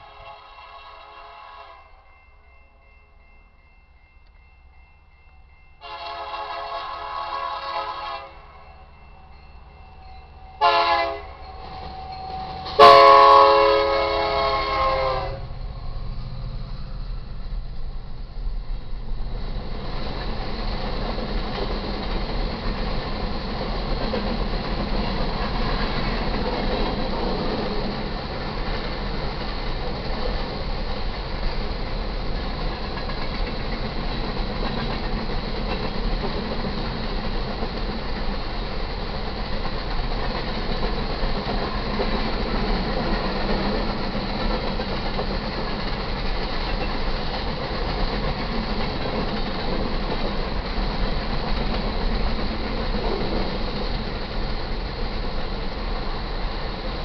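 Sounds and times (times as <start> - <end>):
locomotive air horn: 0.0 - 2.1, 5.8 - 8.6, 10.6 - 12.0, 12.6 - 15.6
train wheels rumbling on rails: 2.2 - 57.0.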